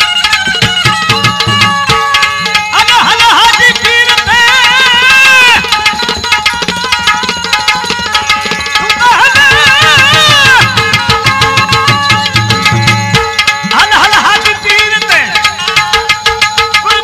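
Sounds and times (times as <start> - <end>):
held accompaniment tones: 0.0 - 17.0
tabla beat: 0.0 - 17.0
man singing: 2.5 - 6.0, 8.7 - 12.6, 13.2 - 17.0.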